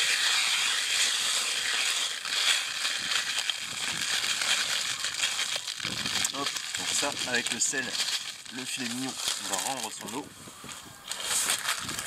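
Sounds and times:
salt pouring into a dish: 0:00.0 - 0:10.3
small clicks of salt landing: 0:02.3 - 0:10.2.

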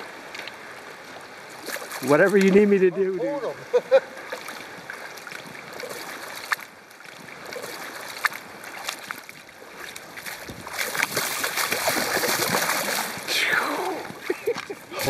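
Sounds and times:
river water rushing: 0:00.0 - 0:15.0
fish splashing at surface: 0:04.3 - 0:14.1.

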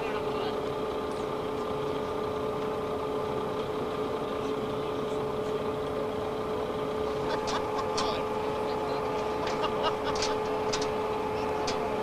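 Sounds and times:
machinery drone with whine: 0:00.0 - 0:12.0.

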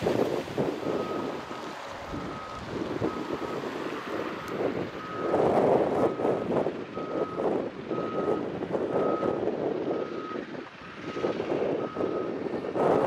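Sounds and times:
diesel engine running: 0:00.0 - 0:13.0
reversing alarm beeping: 0:00.8 - 0:03.7, 0:04.4 - 0:05.4, 0:06.9 - 0:10.4, 0:11.1 - 0:13.0.

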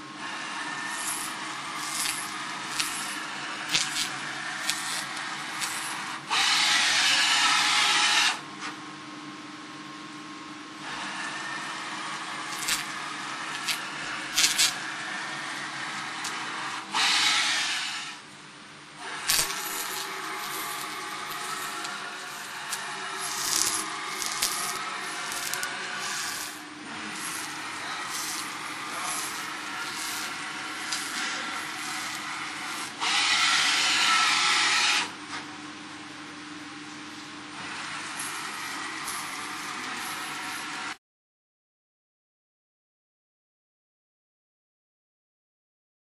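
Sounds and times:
laser cleaning hiss: 0:00.8 - 0:08.2, 0:12.4 - 0:18.2, 0:19.0 - 0:35.0, 0:38.1 - 0:40.8.

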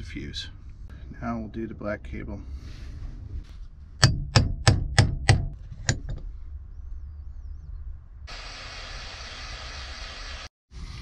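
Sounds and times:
hammer striking crimper: 0:04.0 - 0:06.1
butane torch hissing: 0:08.3 - 0:11.0.

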